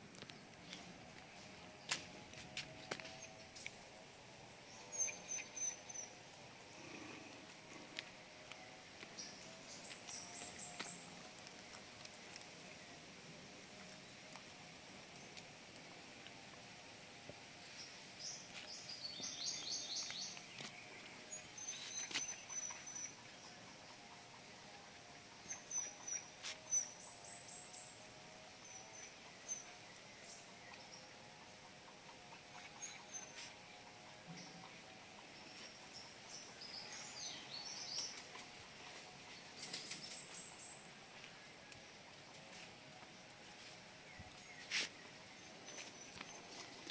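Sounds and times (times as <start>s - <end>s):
faint background noise: 0.0s - 46.9s
birds chirping: 0.2s - 13.0s, 17.7s - 46.9s
bird calling: 4.7s - 7.4s, 18.3s - 24.4s.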